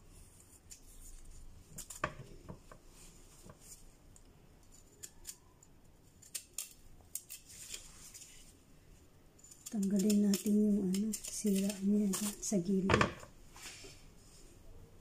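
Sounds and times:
knife scraping carrot: 9.4s - 12.6s.

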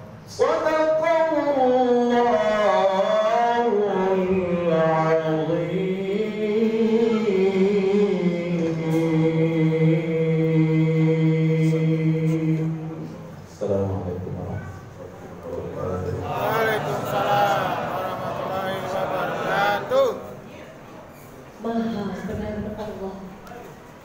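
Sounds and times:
man chanting recitation: 0.3s - 14.2s, 15.6s - 20.3s.

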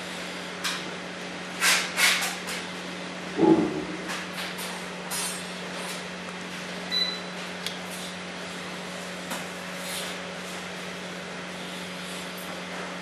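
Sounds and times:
low electrical hum: 2.2s - 12.5s.

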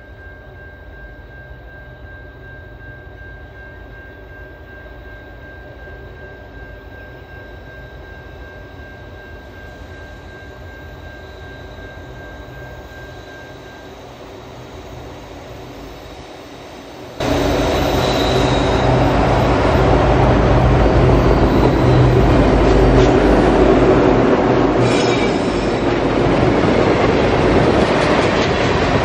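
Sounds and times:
drone propellers whining: 11.7s - 29.0s.

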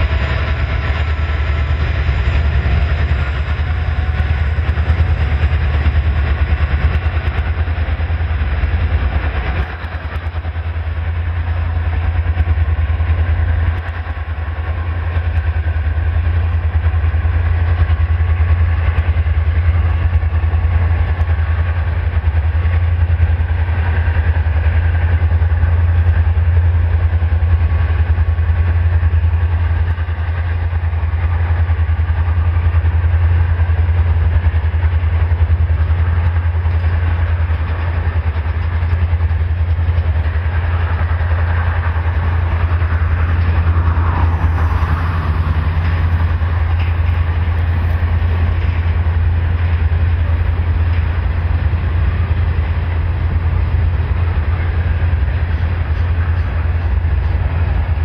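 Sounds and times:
constant low drone: 0.0s - 58.0s
train wheels on rails: 0.0s - 58.0s.

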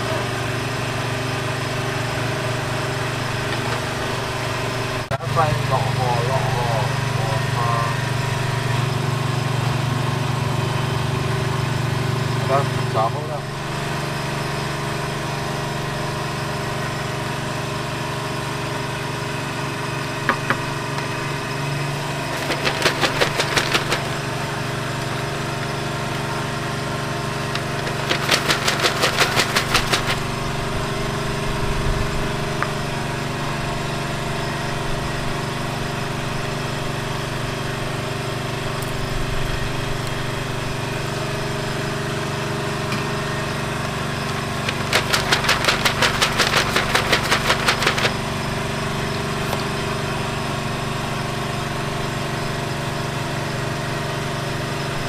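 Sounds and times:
small engine idling: 0.0s - 55.0s
rapid even ticking: 22.3s - 24.2s, 27.5s - 30.3s, 44.6s - 48.2s.

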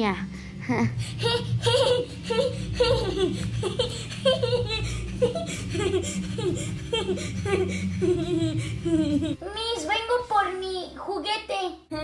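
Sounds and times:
child laughing: 1.1s - 9.5s.

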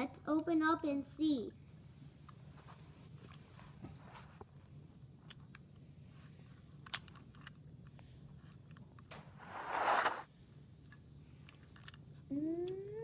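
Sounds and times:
rustling of covering pulled off: 9.3s - 10.3s.

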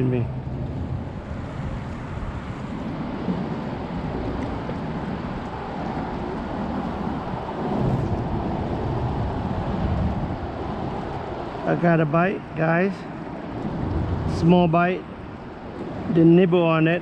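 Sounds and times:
wind rumble on microphone: 0.0s - 17.0s
water lapping against boat: 0.3s - 11.8s.

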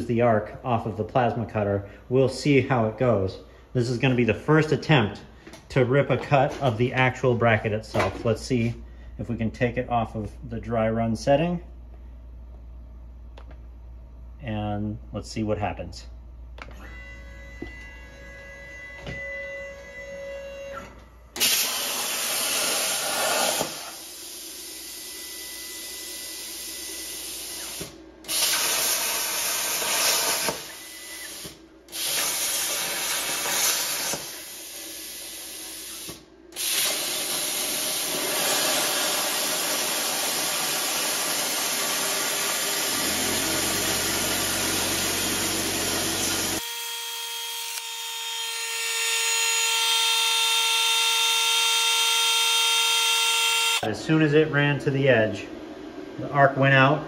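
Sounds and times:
plasma cutter hissing: 21.4s - 24.8s, 27.1s - 42.9s.

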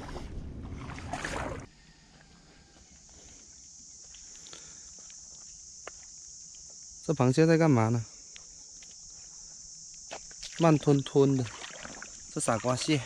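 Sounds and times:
seawater sloshing from wading: 0.0s - 1.7s, 10.6s - 13.0s
high-pitched insect drone: 1.8s - 13.0s.

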